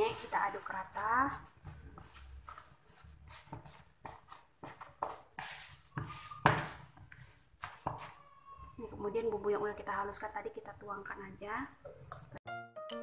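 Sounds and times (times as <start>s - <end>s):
spatula scraping plastic bowl: 0.0s - 8.2s.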